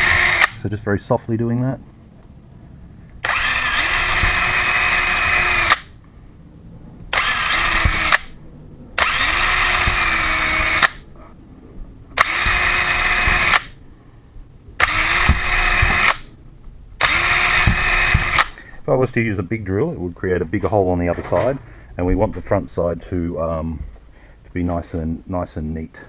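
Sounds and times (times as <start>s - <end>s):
cordless drill drilling: 0.0s - 0.6s, 3.2s - 5.9s, 7.1s - 8.4s, 9.0s - 11.0s, 12.2s - 13.8s, 14.8s - 16.3s, 17.0s - 18.6s.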